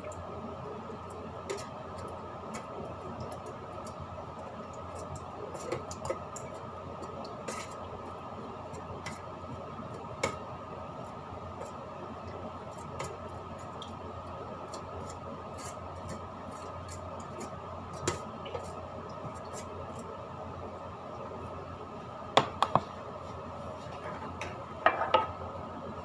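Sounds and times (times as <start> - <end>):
steady background hum: 0.0 - 26.0
fingers tapping a cooking pot: 22.4 - 22.9.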